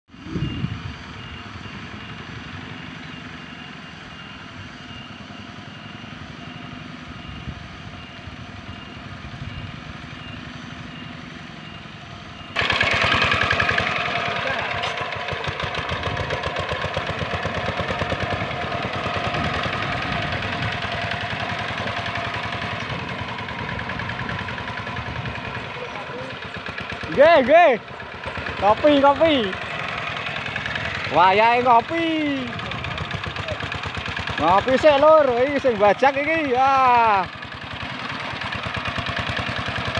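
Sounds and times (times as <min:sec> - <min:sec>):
diesel hand tractor engine running: 0:00.1 - 0:39.9.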